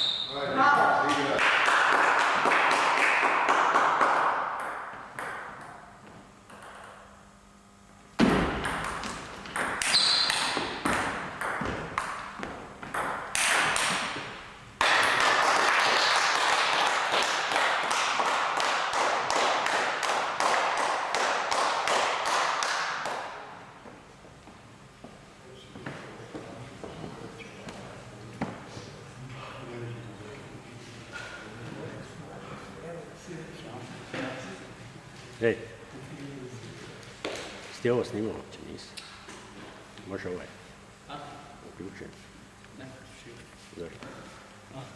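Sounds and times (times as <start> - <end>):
table tennis ball bouncing: 3.7 - 5.9, 6.5 - 7.1, 8.2 - 15.6.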